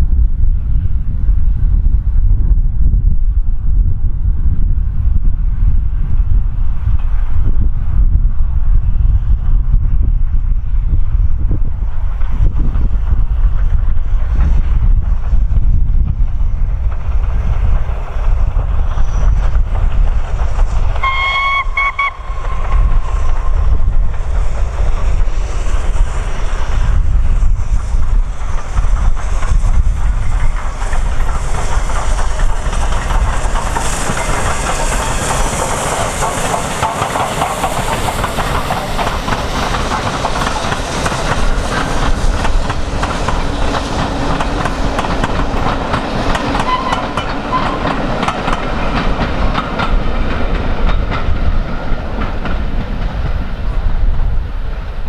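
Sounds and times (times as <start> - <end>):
locomotive heavy low rumble: 0.0 - 55.0
wind buffeting microphone: 0.0 - 55.0
wheels clacking over rail joints: 16.8 - 54.4
steam locomotive whistle: 21.0 - 23.2, 46.6 - 48.0.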